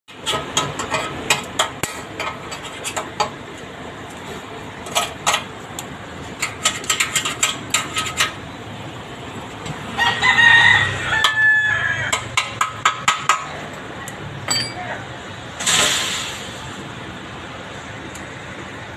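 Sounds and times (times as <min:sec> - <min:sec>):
rooster crowing: 0:09.9 - 0:12.3.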